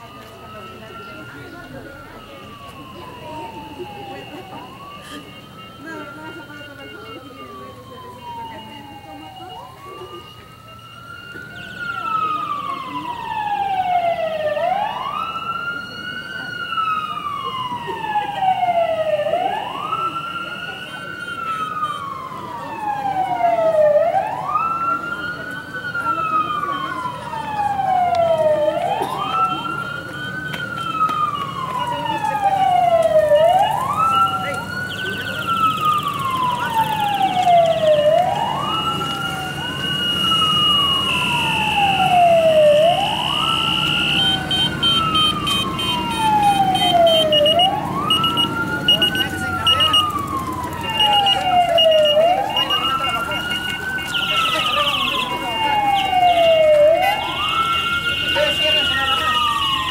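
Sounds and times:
electronic vehicle siren wailing: 0.0 - 59.9.

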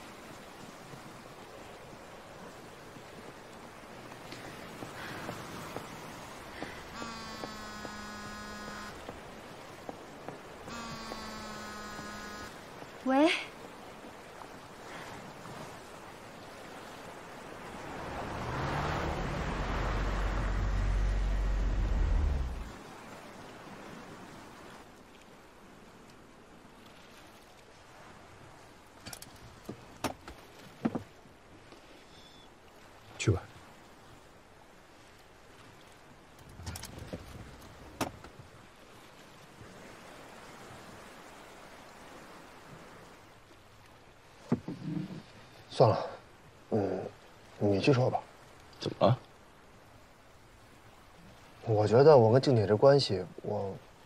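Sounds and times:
faint background hiss: 0.0 - 54.0
faint sea surf: 0.0 - 54.0
car engine and tyre rumble: 16.0 - 24.9.

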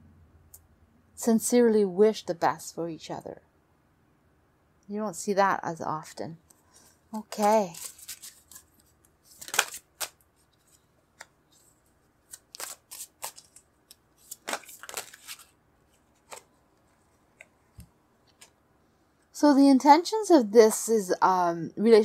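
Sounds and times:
cards shuffled and laid down: 7.3 - 18.6.

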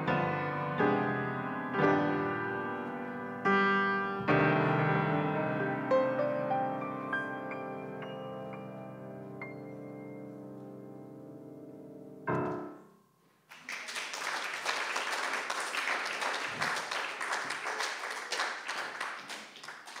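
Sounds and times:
piano chords: 0.0 - 13.2
audience applause: 13.5 - 20.0.

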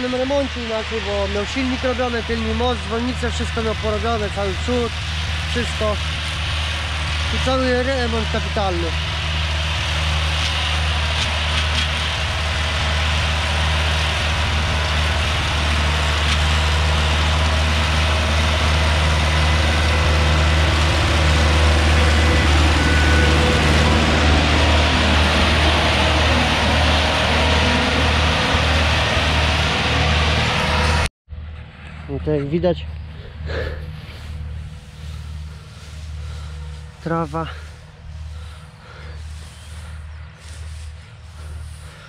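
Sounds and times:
tractor diesel engine running: 0.0 - 42.0.

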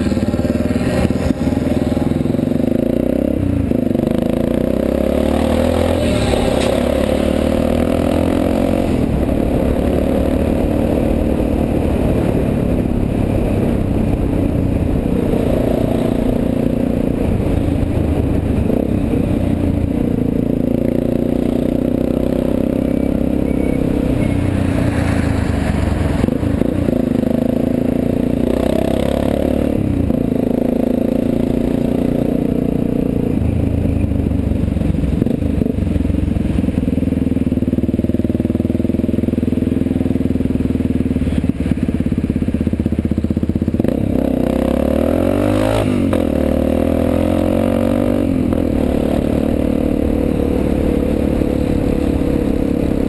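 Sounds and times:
tyres on wet road: 0.0 - 3.8, 23.5 - 30.3
motorcycle engine: 0.0 - 53.0.

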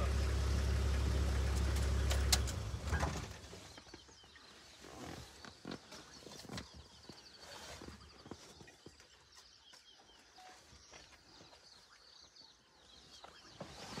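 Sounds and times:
bird chirps: 2.9 - 14.0.

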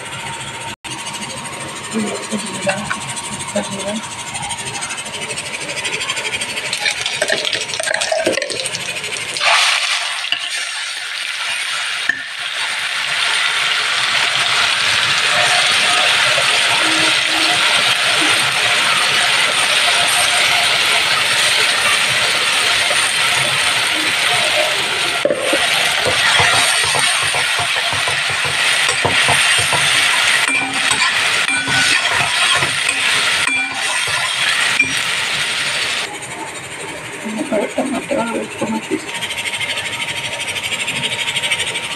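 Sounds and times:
food sizzling in hot oil: 6.7 - 36.1
metal scraping a pan: 25.2 - 36.1
spoon clinking against metal tins: 25.3 - 35.1.

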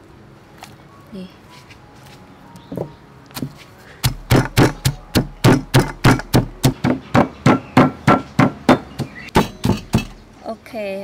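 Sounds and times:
pestle pounding in stone mortar: 3.4 - 10.2.

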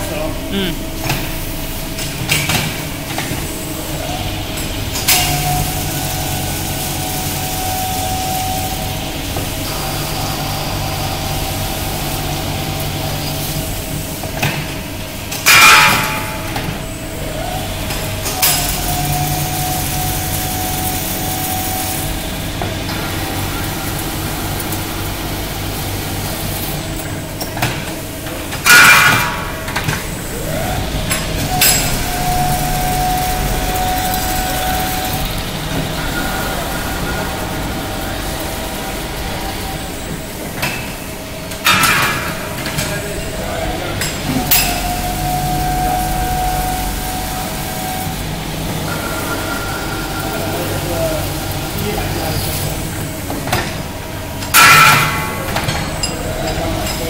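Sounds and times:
lathe motor humming: 30.0 - 41.6.

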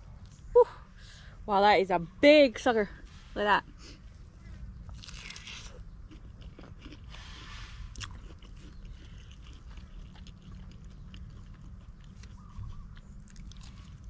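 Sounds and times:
low hum: 0.0 - 14.0
biting and chewing: 4.4 - 14.0.

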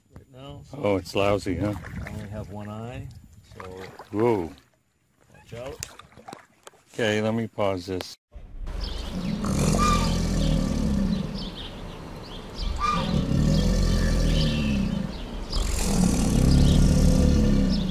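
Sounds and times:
alligator bellowing: 8.8 - 17.9.

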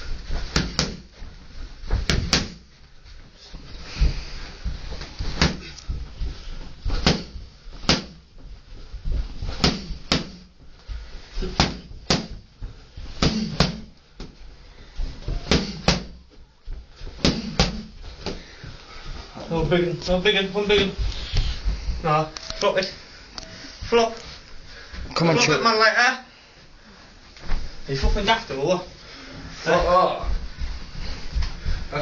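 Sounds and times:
boxing gloves smacking pads: 0.4 - 1.2, 1.9 - 2.7, 5.0 - 6.1, 6.9 - 8.2, 9.5 - 10.5, 11.4 - 12.5, 13.1 - 14.4, 15.2 - 16.2, 17.1 - 18.4.

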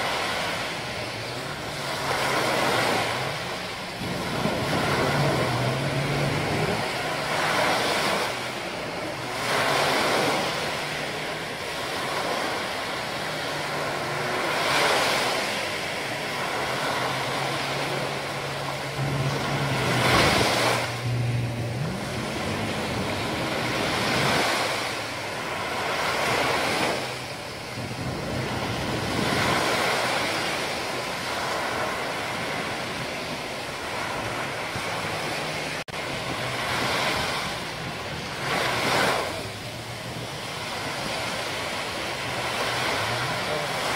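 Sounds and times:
waves breaking on a beach: 0.0 - 43.9
low hum rising in pitch: 2.9 - 12.1, 15.4 - 25.6.

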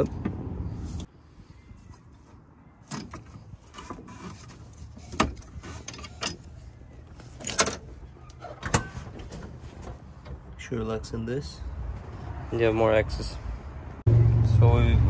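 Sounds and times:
metal cover clanking and rattling: 5.0 - 6.5, 7.4 - 10.4.

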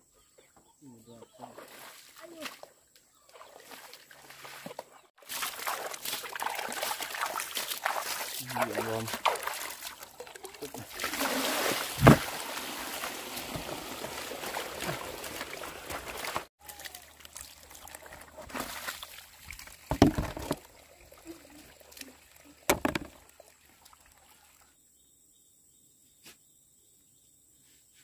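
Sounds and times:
water pouring and splashing: 3.3 - 24.6
knocks and thumps of plastic barrel: 11.8 - 12.4, 19.9 - 20.7, 22.7 - 23.2.

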